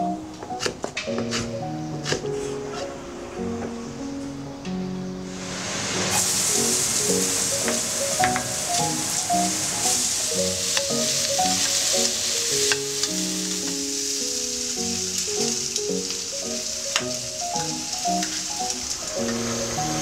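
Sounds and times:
vegetables sizzling in a wok: 5.2 - 20.0.

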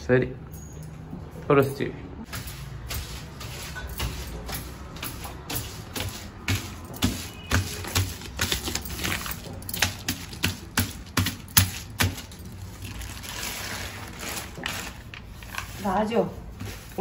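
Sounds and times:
utensils tapping and clicking: 2.3 - 13.0.

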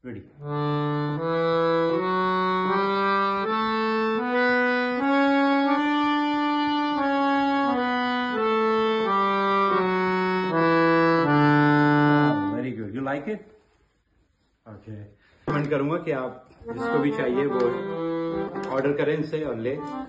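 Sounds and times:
harmonium playing scale: 0.4 - 13.0, 16.6 - 20.0.

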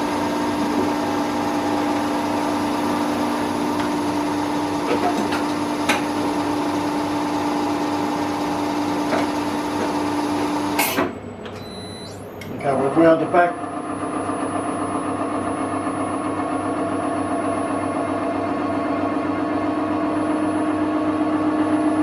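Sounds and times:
milling machine cutting steel: 0.0 - 11.0.

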